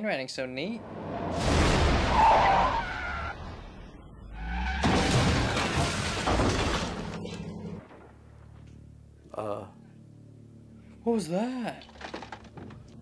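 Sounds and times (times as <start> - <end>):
car crashing through doors: 1.2 - 3.8, 4.4 - 8.2
glass shattering: 4.8 - 7.4.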